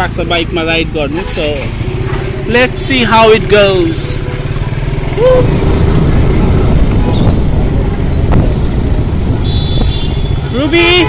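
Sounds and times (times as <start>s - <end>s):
motorcycle engine rumble: 0.0s - 11.0s
wind on microphone: 5.2s - 10.5s.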